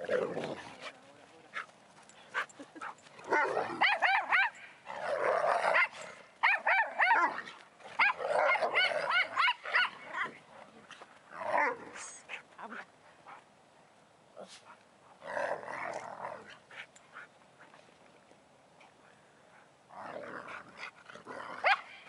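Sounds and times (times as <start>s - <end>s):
dogs growling: 0.0s - 1.1s, 19.9s - 21.8s
dogs barking and yipping: 2.3s - 4.8s, 5.6s - 10.4s, 21.6s - 22.0s.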